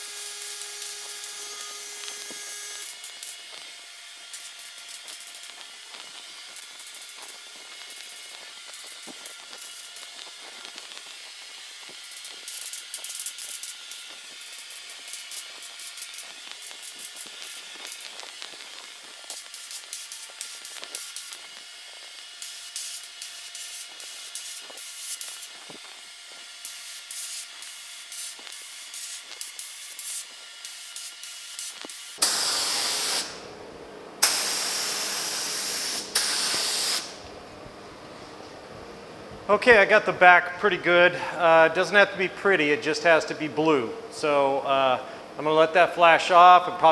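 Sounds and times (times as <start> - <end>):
paint spray gun hissing: 0.0 - 33.5, 34.2 - 37.3.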